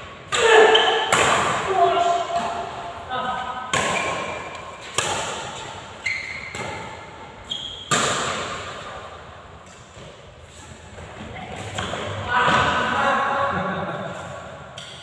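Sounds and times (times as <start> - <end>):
racket striking shuttlecock: 0.3 - 1.7, 3.7 - 7.1, 7.7 - 10.2
shoes squeaking on court: 4.0 - 8.0.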